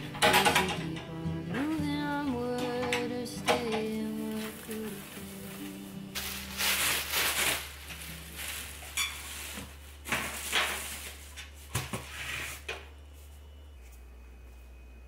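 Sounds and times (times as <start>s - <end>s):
plastic bin liner rustling: 4.2s - 12.6s.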